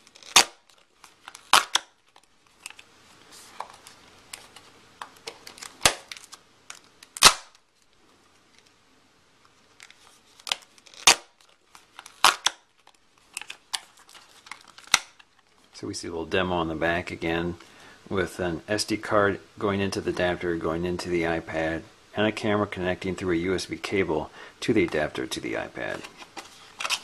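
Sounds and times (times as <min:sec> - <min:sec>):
cardboard and plastic clicks and snaps: 0:00.0 - 0:02.9, 0:03.6 - 0:07.6, 0:09.8 - 0:15.5.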